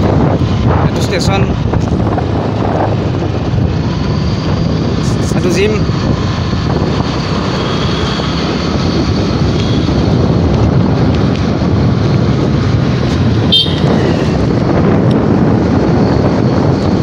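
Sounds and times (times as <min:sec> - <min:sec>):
wind rumbling on microphone: 0:00.0 - 0:17.0
motorbike engine running: 0:06.1 - 0:17.0
high-pitched horn toot: 0:13.4 - 0:14.3.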